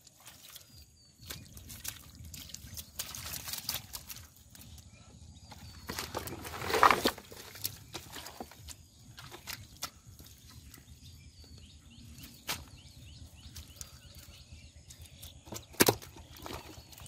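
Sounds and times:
wet slaps of fish in mud: 1.2 - 4.3, 9.2 - 10.3, 12.2 - 12.8
faint bird chirps: 7.4 - 17.0.

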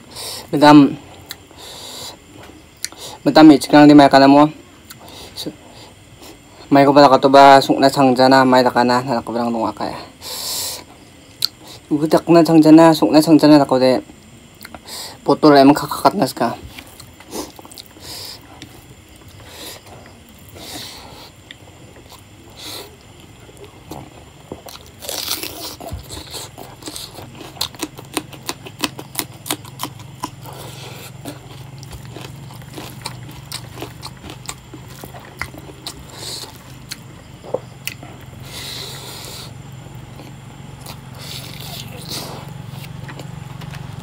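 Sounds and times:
chewing and lip-smacking: 14.5 - 14.8, 16.7 - 39.5, 40.1 - 43.9.

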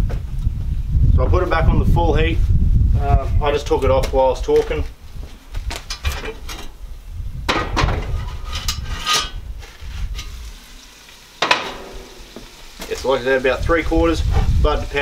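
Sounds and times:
cast-iron pot scraping: 7.4 - 12.9, 14.2 - 15.0
sharp metal clanks: 7.5 - 9.4, 11.4 - 12.2
pot sizzling: 8.0 - 15.0.

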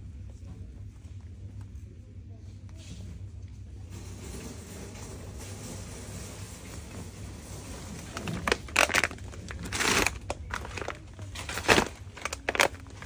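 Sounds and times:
low steady hum: 0.0 - 13.0
cooler bag plastic crinkling: 8.0 - 13.0.

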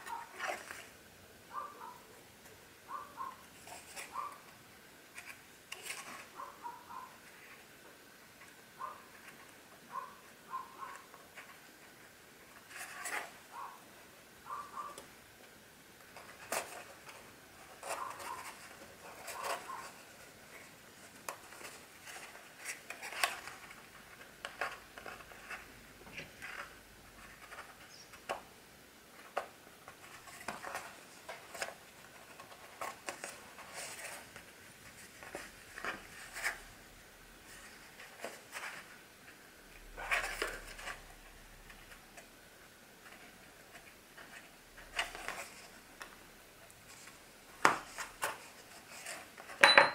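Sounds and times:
hands clicking and scraping on book: 16.0 - 28.5, 29.2 - 36.6, 46.9 - 49.6.

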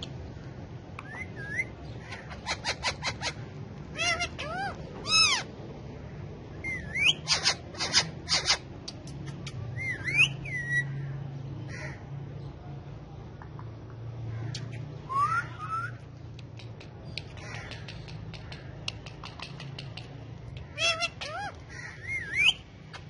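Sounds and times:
parakeets squawking: 1.0 - 5.5, 6.5 - 12.0, 14.4 - 23.0
parakeet screeches: 1.2 - 5.5, 6.6 - 8.7, 20.6 - 23.0.

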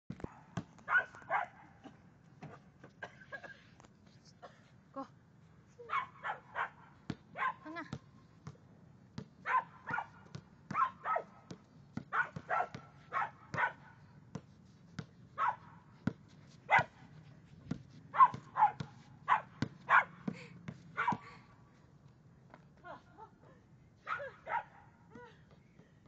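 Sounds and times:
basketball bouncing: 0.1 - 1.3, 7.0 - 15.2, 17.6 - 21.3
puppy barking: 0.3 - 1.6, 5.9 - 6.8, 7.4 - 7.6, 9.5 - 11.3, 12.1 - 13.9, 15.4 - 15.6, 16.7 - 17.0, 18.2 - 20.2, 24.1 - 24.8.

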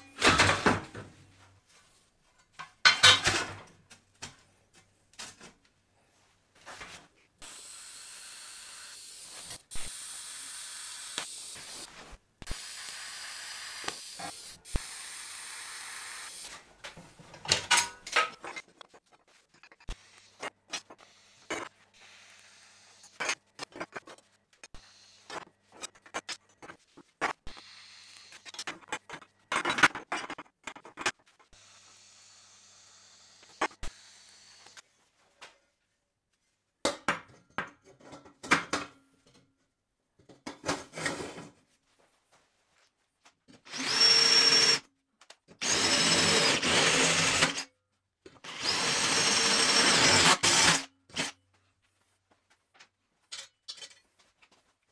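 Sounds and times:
metal parts clinking on table: 53.3 - 54.1.

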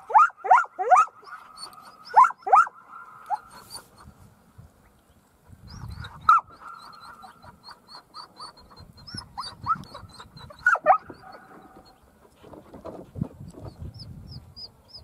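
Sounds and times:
dog yelping and barking: 0.0 - 3.9, 5.7 - 12.0.

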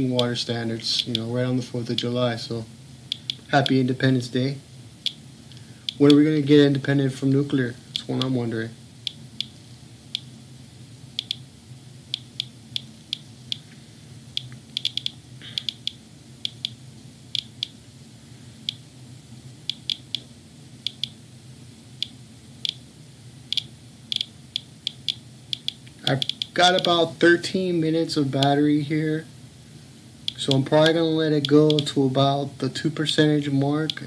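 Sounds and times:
low steady hum: 0.0 - 34.0
geiger counter chirping: 3.1 - 3.8, 9.0 - 9.6, 12.1 - 13.6, 14.3 - 16.8, 19.6 - 20.2, 20.9 - 21.2, 23.5 - 26.9.

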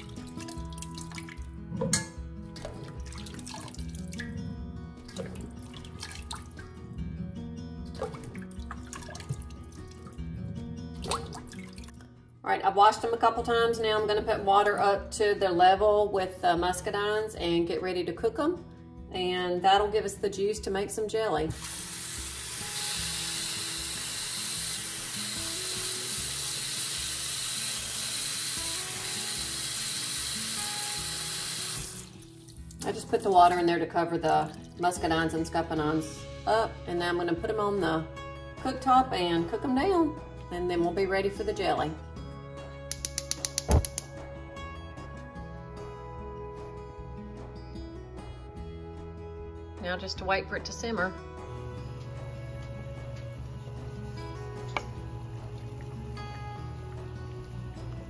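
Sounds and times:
water splashing and dripping: 0.0 - 1.5, 2.5 - 4.4, 5.0 - 6.7, 7.9 - 10.2, 11.0 - 12.1, 31.8 - 33.4
faucet water splashing into pot: 0.0 - 4.4, 5.0 - 6.6, 8.0 - 10.2, 11.0 - 12.0, 21.5 - 33.5
background music: 0.0 - 58.0
background music with bass line: 41.6 - 58.0.

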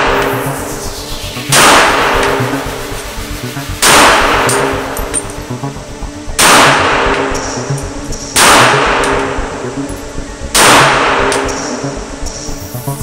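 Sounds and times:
background music: 0.0 - 13.0
pistol shots echoing: 10.6 - 11.5.

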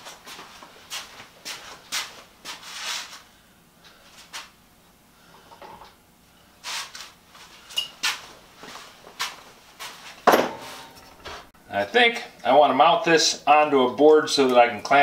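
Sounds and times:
metal tools knocking and clinking: 10.3 - 11.2.

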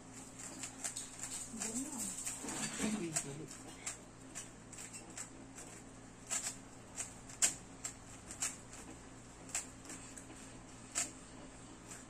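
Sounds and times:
puzzle cube clicking: 4.8 - 8.9.

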